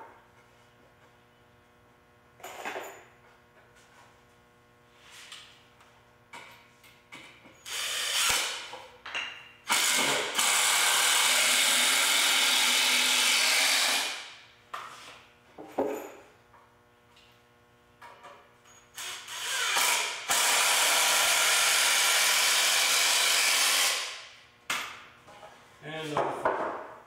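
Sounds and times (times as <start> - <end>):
impact driver driving screw: 7.7 - 8.7, 9.7 - 14.2, 19.0 - 24.2.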